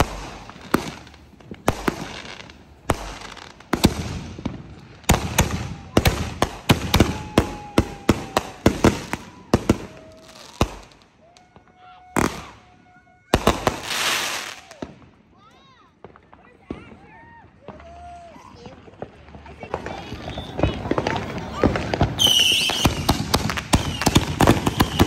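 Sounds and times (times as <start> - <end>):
fireworks bangs and crackles: 0.0 - 25.0
falling firework whistle: 6.8 - 14.9, 20.1 - 25.0.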